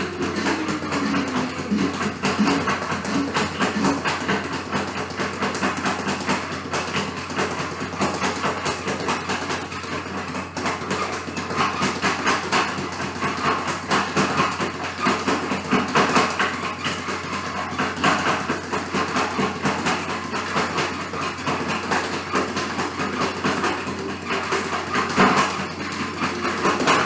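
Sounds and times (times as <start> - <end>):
speed bag rattling: 0.0 - 15.8.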